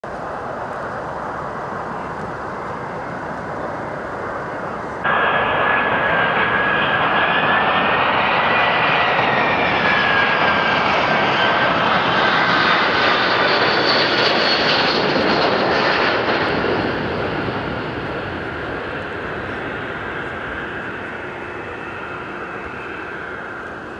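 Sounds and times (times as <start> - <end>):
jet engine noise: 0.0 - 23.9
high engine whine: 0.1 - 23.9.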